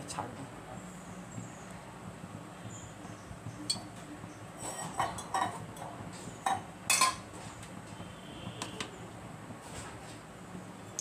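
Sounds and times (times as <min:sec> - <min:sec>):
utensils clinking on metal pan: 0:04.6 - 0:07.3.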